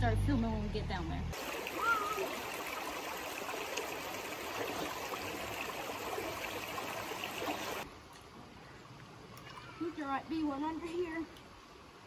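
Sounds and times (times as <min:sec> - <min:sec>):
creek water rushing over stones: 0:01.4 - 0:07.9.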